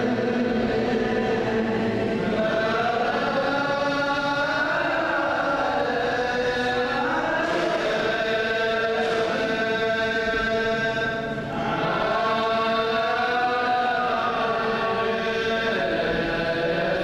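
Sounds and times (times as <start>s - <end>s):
several voices chanting: 0.0s - 17.0s.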